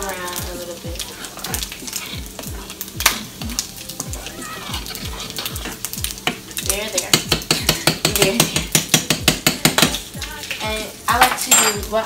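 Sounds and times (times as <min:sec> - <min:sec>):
spoon clinking in saucepan: 0:11.2 - 0:12.0.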